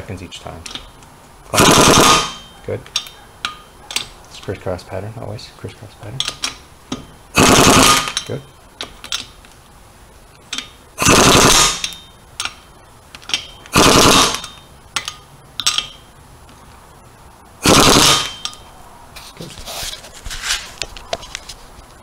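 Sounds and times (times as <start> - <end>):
impact wrench rattling bursts: 0.7 - 4.0, 6.2 - 9.4, 10.5 - 16.1, 17.6 - 18.6.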